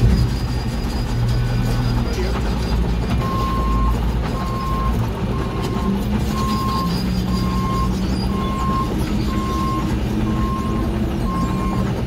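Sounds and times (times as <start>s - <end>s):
telehandler engine running: 0.0s - 12.0s
warning alarm beeps: 3.2s - 11.9s.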